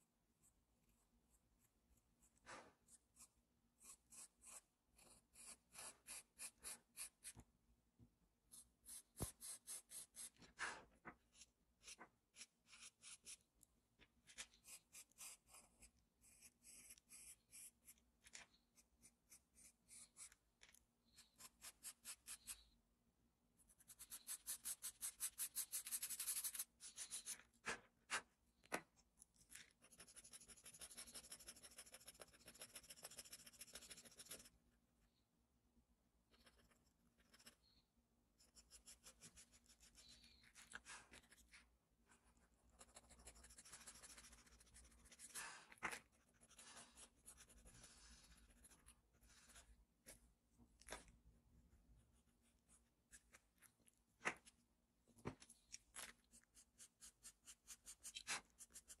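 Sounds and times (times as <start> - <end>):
pencil scratching on paper: 2.2 - 7.4, 8.5 - 13.5, 14.2 - 22.7, 23.7 - 28.3, 29.7 - 34.6, 36.3 - 37.8, 38.4 - 50.2, 56.3 - 59.0.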